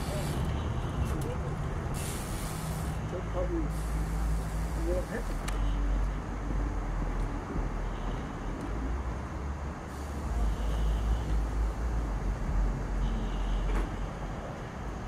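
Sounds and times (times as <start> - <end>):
hiss of noise: 0.0 - 0.7, 1.8 - 5.6, 9.8 - 12.4.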